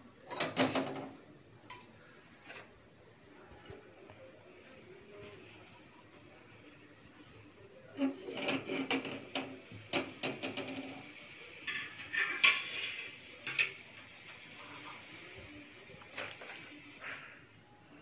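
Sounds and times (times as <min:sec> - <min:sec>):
metal utensils clattering: 0:00.3 - 0:02.0, 0:08.0 - 0:11.0, 0:11.6 - 0:13.9.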